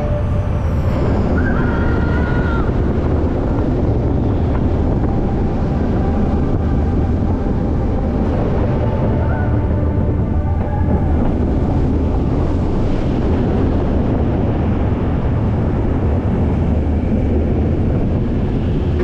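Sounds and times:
high squeal: 0.0s - 4.5s
roller coaster rumbling on track: 0.0s - 19.0s
wind buffeting microphone: 0.0s - 19.0s.

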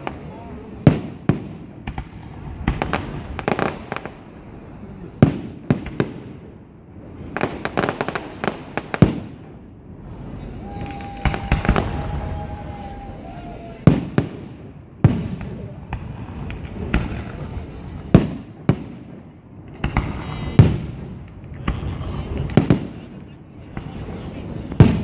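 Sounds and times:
fireworks bangs and crackling: 0.0s - 25.0s
firework whistling: 10.2s - 18.4s
heavy firework bang: 10.6s - 19.1s, 19.7s - 25.0s.

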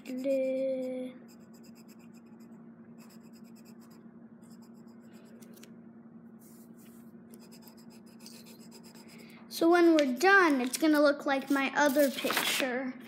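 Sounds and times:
pencil scratching on paper: 0.0s - 5.3s, 6.5s - 9.3s.

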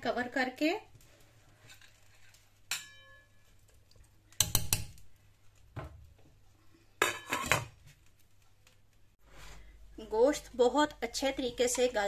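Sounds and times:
spoon clinking on metal pot: 2.7s - 3.4s.

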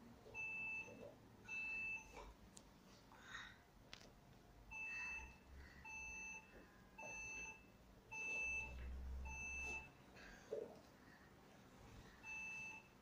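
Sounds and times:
short electronic beeps: 4.7s - 10.0s.

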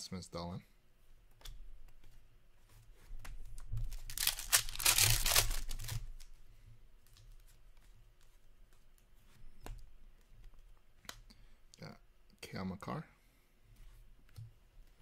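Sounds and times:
soft rustling: 0.9s - 11.6s, 13.3s - 15.0s
card pack wrapper ripping: 3.9s - 6.3s.

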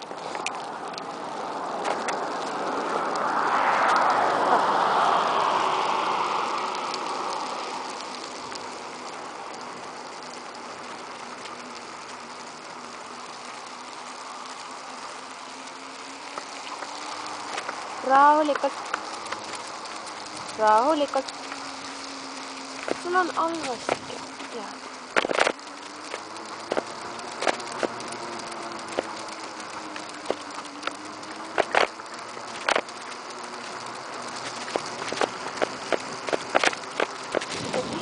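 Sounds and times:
wheels rolling on asphalt: 0.0s - 38.0s
wind on microphone: 37.3s - 38.0s.

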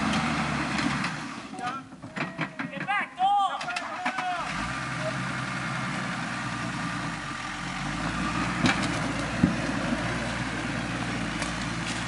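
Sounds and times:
engine running at low revs: 0.0s - 1.5s, 4.5s - 12.0s.

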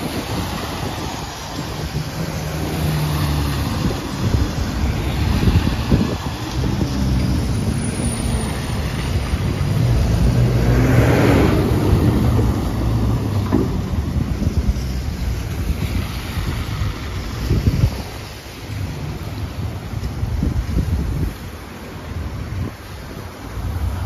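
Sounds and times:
traffic passing: 0.0s - 24.0s
tyres hissing on wet road: 0.0s - 24.0s
wind buffeting microphone: 0.0s - 24.0s
backhoe diesel engine rumble: 1.4s - 15.8s.

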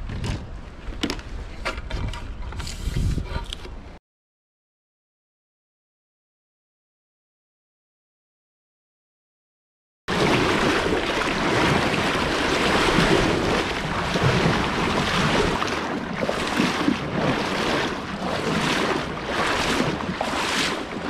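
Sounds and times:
wind buffeting microphone: 1.4s - 3.8s, 10.1s - 21.0s
water splashing along kayak hull: 10.1s - 21.0s.

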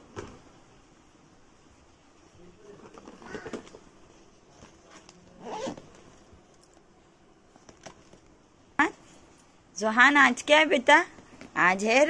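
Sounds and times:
backpack zipper being pulled: 5.4s - 5.9s.

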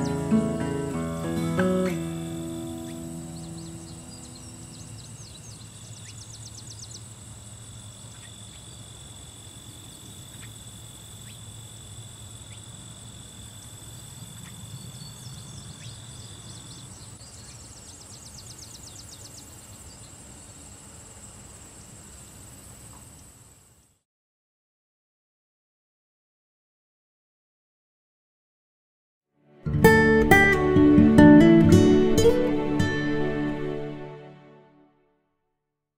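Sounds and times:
insects trilling: 0.0s - 24.0s
insects chirping in rapid pulses: 1.8s - 24.0s.

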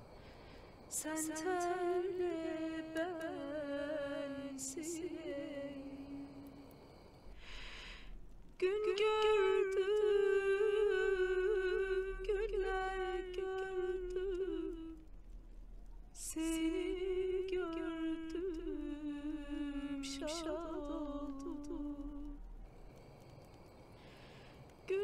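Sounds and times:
quick breath: 0.2s - 0.9s, 6.8s - 8.2s, 22.8s - 24.8s
woman humming: 16.2s - 22.4s.

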